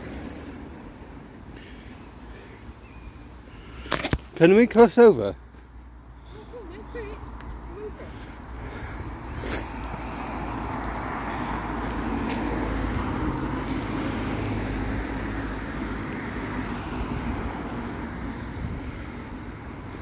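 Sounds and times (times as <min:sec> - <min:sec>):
vehicle passing on wet road: 0:08.2 - 0:20.0.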